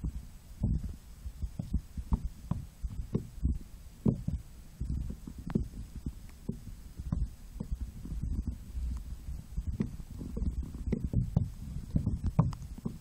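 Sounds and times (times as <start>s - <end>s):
muffled underwater rumble: 0.0s - 13.0s
soft thumps: 0.0s - 13.0s.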